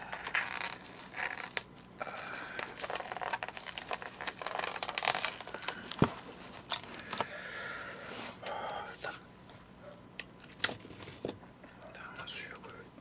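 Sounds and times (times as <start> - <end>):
cling wrap crinkling and tearing: 0.0 - 7.3
cling wrap snapping: 0.0 - 7.3.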